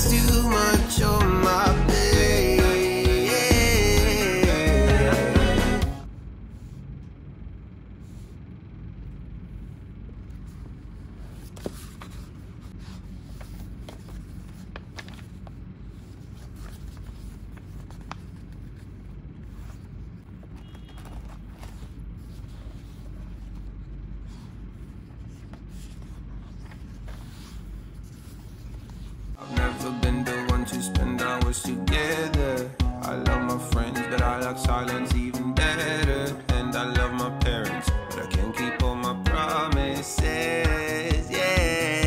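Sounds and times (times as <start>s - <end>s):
low room hum: 5.0s - 42.0s
book pages turning: 10.0s - 29.4s.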